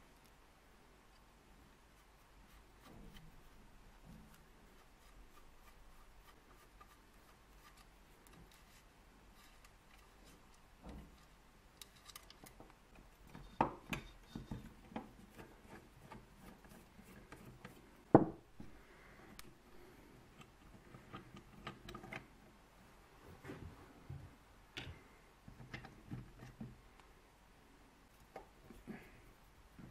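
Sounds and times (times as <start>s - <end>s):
light clicks and scrapes of parts: 1.9s - 18.1s, 19.2s - 22.5s, 24.8s - 27.1s.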